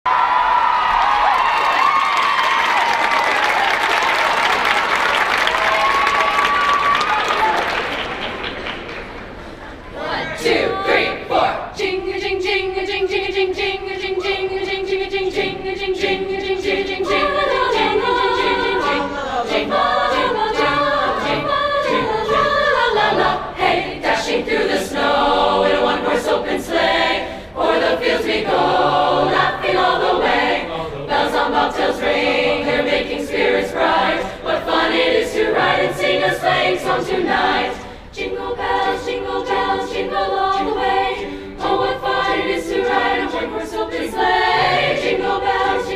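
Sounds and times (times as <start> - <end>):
choir singing in harmony: 9.4 - 45.9.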